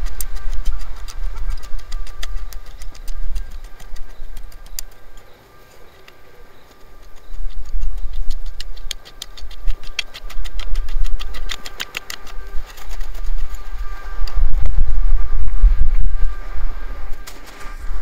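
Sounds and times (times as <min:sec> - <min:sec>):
hoe scraping dry soil: 0:00.0 - 0:05.9, 0:06.6 - 0:14.4
steady low rumble: 0:07.4 - 0:18.0.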